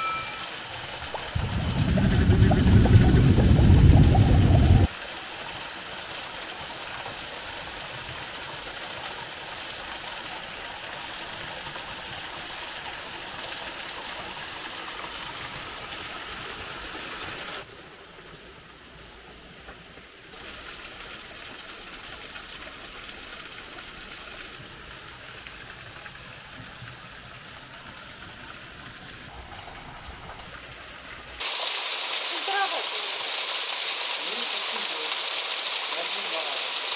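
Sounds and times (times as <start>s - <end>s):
waterfall rushing: 0.0s - 5.2s, 31.4s - 36.9s.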